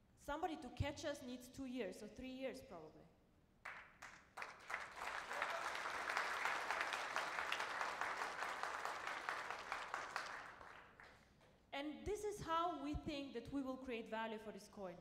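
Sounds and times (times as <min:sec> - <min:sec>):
audience applauding: 0:03.6 - 0:11.2.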